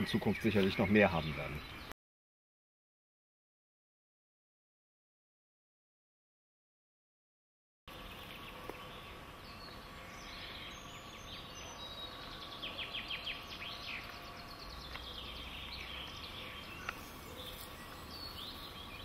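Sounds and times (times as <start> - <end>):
small birds chirping: 0.0 - 1.9, 7.9 - 19.0
faint steady hum: 7.9 - 19.0.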